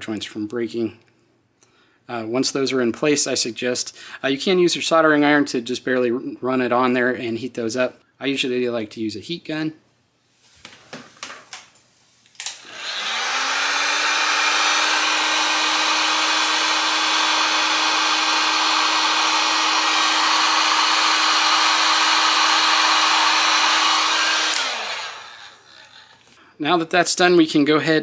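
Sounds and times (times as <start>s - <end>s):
heat gun fan humming: 12.4s - 26.4s.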